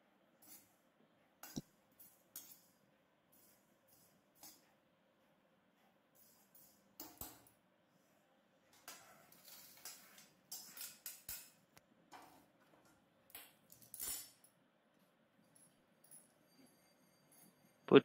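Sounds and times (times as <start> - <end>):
metal spoon clinking on iron pan: 1.4 - 2.7.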